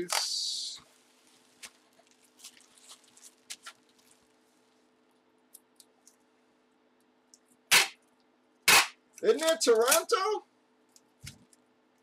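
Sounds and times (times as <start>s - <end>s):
plastic wrap crinkling: 0.0s - 6.2s.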